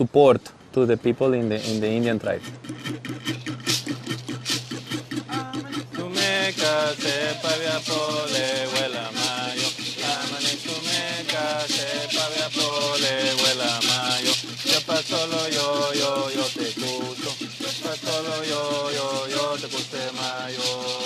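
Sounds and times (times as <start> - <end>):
stick rasps scraping: 1.4 - 21.0
cocoon leg rattles: 1.6 - 11.5
gourd rattles shaking: 1.6 - 21.0
men singing: 5.2 - 21.0.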